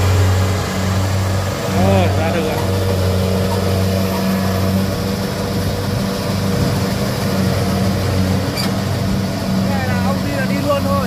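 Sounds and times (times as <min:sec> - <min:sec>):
diesel engine droning: 0:00.0 - 0:11.0.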